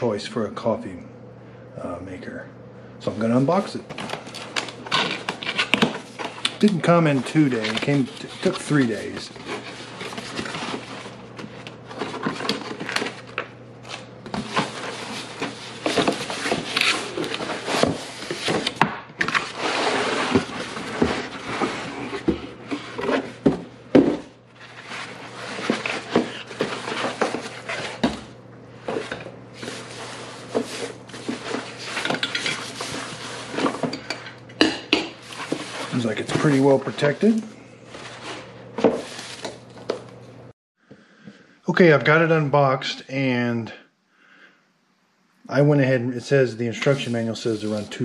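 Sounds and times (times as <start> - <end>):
faint steady hum: 0.0 - 48.0
cardboard and packing rustling: 3.2 - 34.0, 35.2 - 40.1.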